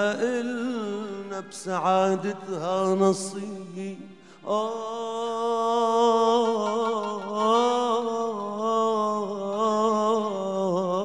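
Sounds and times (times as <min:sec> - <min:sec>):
man singing a held note: 0:00.0 - 0:11.0
breath: 0:04.1 - 0:04.5.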